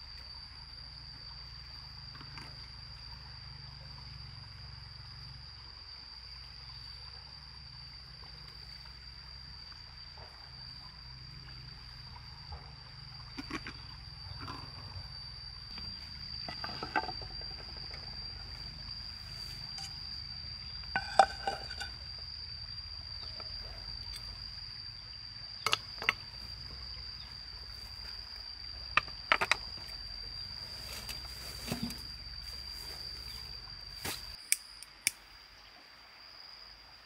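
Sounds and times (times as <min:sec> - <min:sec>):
high insect drone: 0:00.0 - 0:37.0
sharp clicks and knocks: 0:25.7 - 0:26.2.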